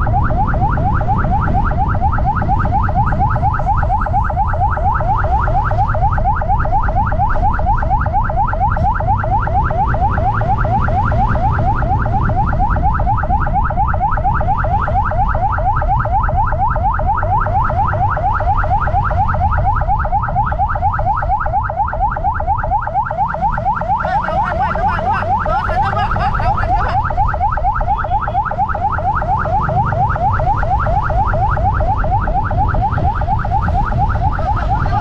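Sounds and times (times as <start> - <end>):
electronic siren yelp: 0.0 - 35.0
wind: 0.0 - 35.0
motorcycle rumble: 22.8 - 35.0.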